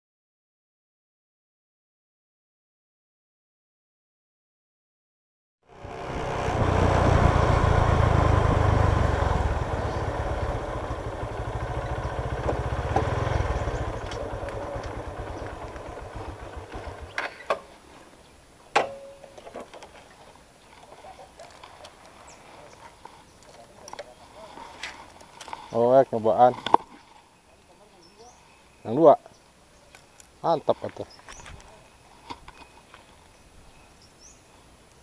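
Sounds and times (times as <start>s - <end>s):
motorcycle engine rumble: 5.7s - 17.8s.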